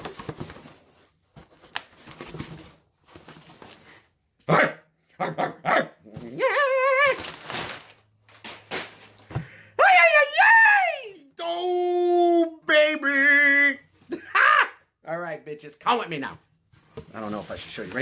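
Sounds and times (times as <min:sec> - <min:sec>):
cardboard and packing rustling: 0:00.0 - 0:04.2, 0:06.2 - 0:09.5, 0:16.1 - 0:18.0
dog barking: 0:04.5 - 0:06.0.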